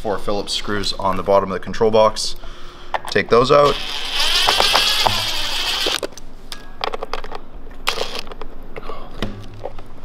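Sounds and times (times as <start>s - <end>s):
cordless drill whine: 3.6s - 6.0s, 7.9s - 8.2s
screws scraping and clicking: 3.6s - 6.1s, 7.9s - 8.3s.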